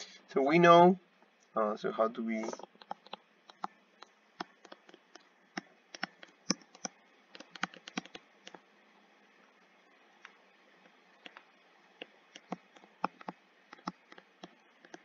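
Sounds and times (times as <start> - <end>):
stylus tapping on tablet screen: 2.4 - 8.6, 10.2 - 15.0.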